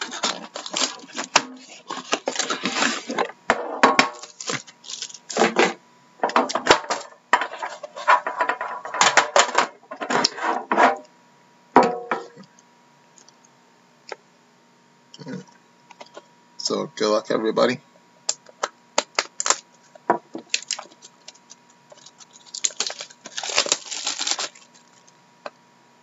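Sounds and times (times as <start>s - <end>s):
plastic wrapping crinkling: 0.0s - 3.2s, 4.2s - 5.6s, 19.0s - 25.2s.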